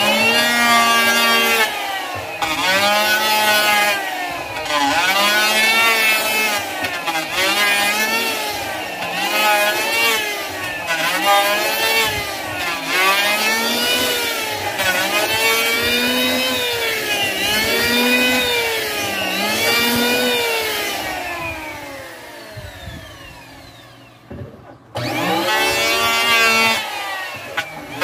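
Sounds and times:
electric hand planer cutting wood: 0:00.0 - 0:28.0.

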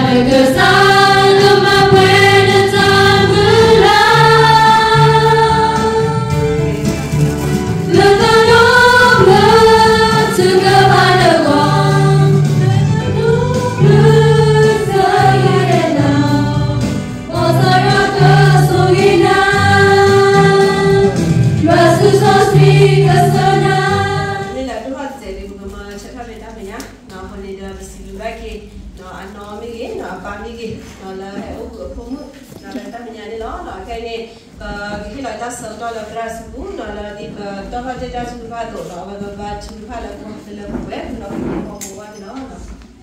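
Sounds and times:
group singing a hymn: 0:00.0 - 0:07.0, 0:07.7 - 0:24.7.

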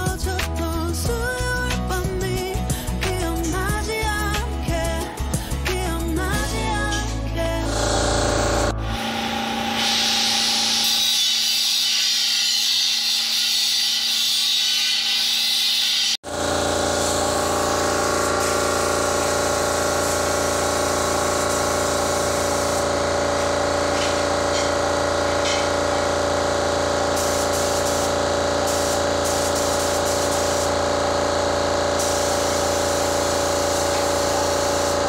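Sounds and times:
air compressor motor hum: 0:07.6 - 0:12.2, 0:16.0 - 0:35.0
spray gun hissing: 0:09.6 - 0:10.9, 0:15.7 - 0:35.0.

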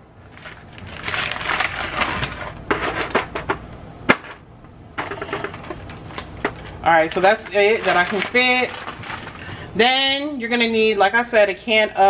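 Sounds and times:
plastic package crinkling: 0:00.2 - 0:02.7, 0:05.4 - 0:09.7.

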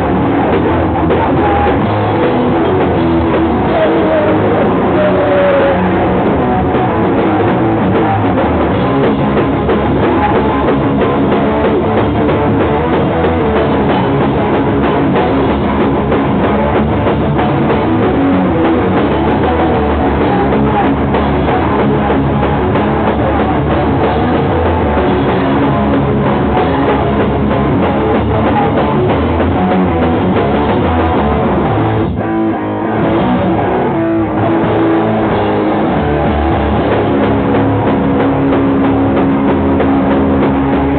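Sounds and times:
live rock band playing: 0:00.0 - 0:40.9.

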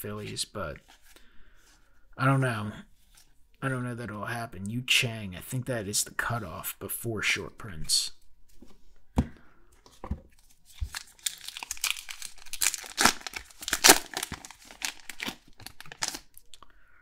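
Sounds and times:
wrapper tearing and crinkling: 0:10.7 - 0:16.5.

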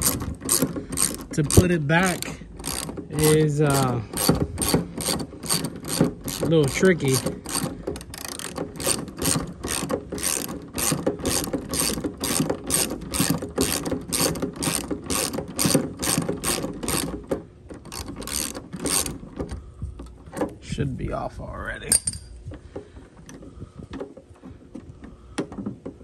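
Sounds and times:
ratchet clicking: 0:00.0 - 0:19.6.

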